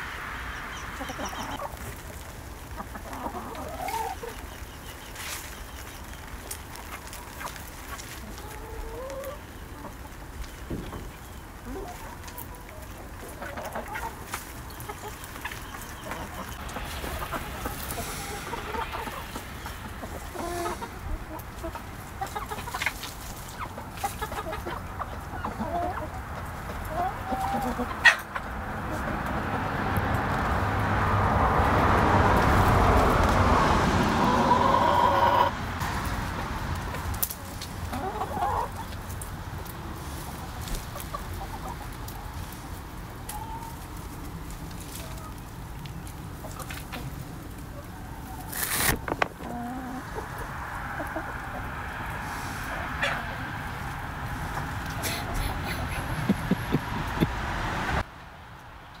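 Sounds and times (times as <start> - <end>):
hens clucking: 0.0 - 30.3, 32.3 - 58.0
broad noise: 14.1 - 24.0.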